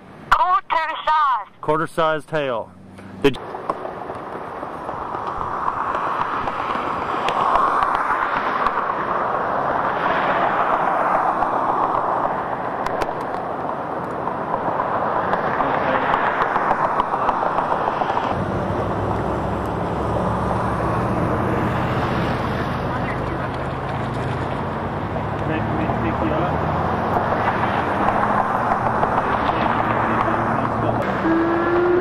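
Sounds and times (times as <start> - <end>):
tyre noise of passing vehicles: 0.0 - 32.0
low engine hum: 11.4 - 32.0.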